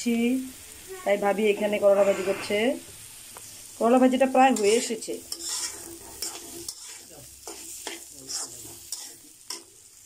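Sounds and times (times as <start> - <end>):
faint frying sizzle: 0.0 - 10.0
metal spatula scraping pan: 1.5 - 2.8, 4.5 - 9.7.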